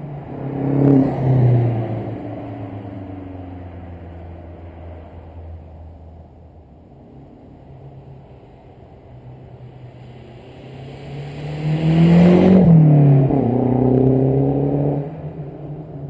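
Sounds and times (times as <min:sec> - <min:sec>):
car accelerating past: 0:09.2 - 0:16.0.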